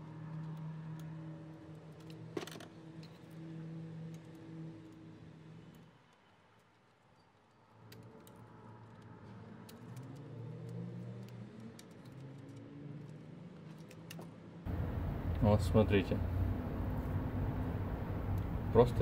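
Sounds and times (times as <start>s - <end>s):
low hum: 14.7s - 19.0s.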